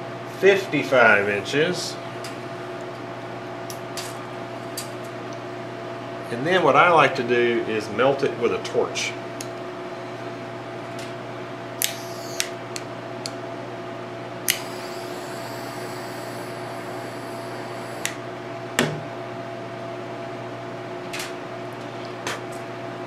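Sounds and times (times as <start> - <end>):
steady background hum: 0.0 - 23.0
torch igniter clicking: 11.8 - 13.4, 14.4 - 16.4, 17.7 - 18.2
torch flame hissing: 14.5 - 18.2.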